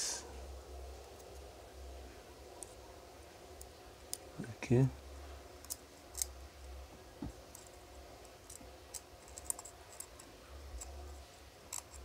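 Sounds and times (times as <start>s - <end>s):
faint low hum: 0.0s - 12.0s
metal tweezers clicking and scratching: 5.6s - 6.4s, 7.4s - 11.0s, 11.6s - 12.0s.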